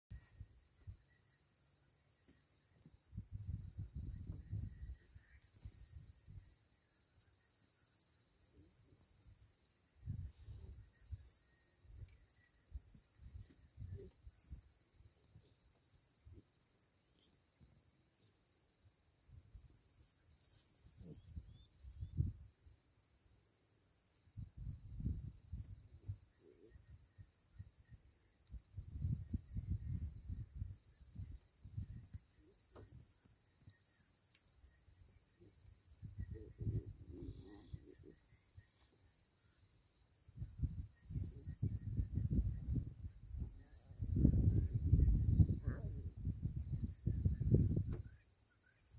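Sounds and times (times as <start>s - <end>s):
crickets chirring: 0.1s - 48.9s
low rumbles on microphone: 3.1s - 5.0s, 28.6s - 33.0s, 36.0s - 38.1s, 40.4s - 48.2s.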